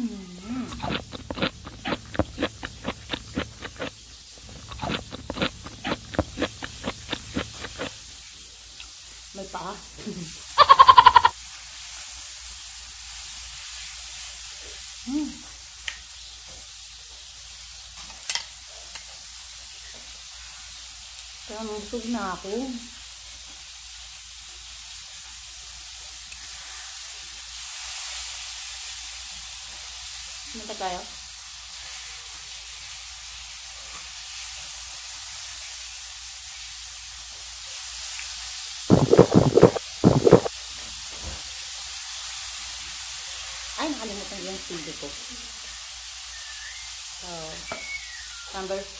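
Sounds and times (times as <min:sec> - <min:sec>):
person chewing: 0:00.4 - 0:08.1, 0:10.6 - 0:11.3, 0:38.9 - 0:40.5.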